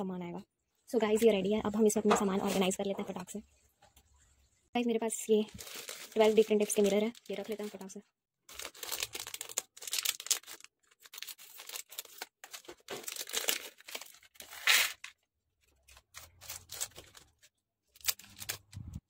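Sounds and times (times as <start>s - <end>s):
plastic packets crinkling: 5.3s - 19.0s.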